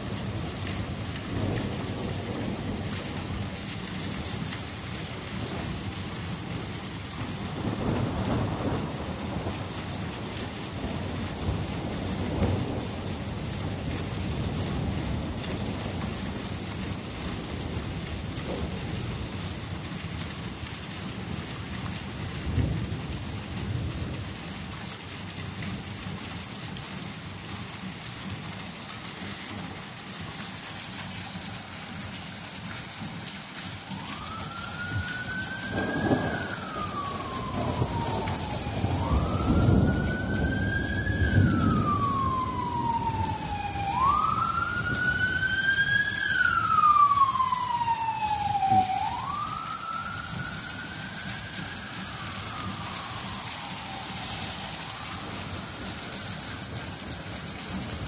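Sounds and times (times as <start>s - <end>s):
emergency siren wailing: 0.0s - 19.1s, 29.2s - 58.0s
steady rain: 0.0s - 58.0s
thunder rumbling: 0.0s - 58.0s.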